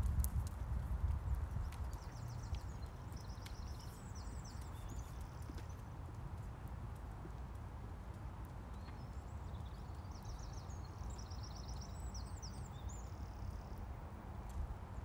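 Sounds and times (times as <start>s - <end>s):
faint hoofbeats on soft ground: 0.0s - 14.8s
small bird singing: 1.6s - 5.8s, 8.8s - 13.7s.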